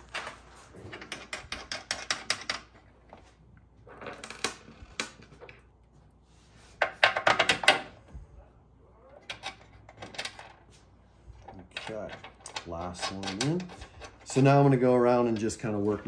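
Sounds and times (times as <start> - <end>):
bolts and nuts clinking: 0.0 - 3.1, 11.4 - 16.0.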